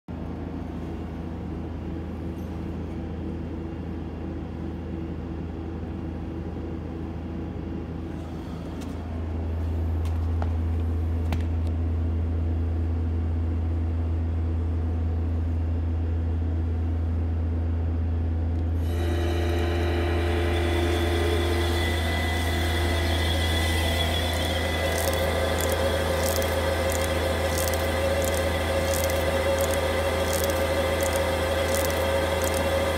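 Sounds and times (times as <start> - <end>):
machine electrical hum: 0.1 - 32.9
rollers turning with whine: 18.8 - 32.9.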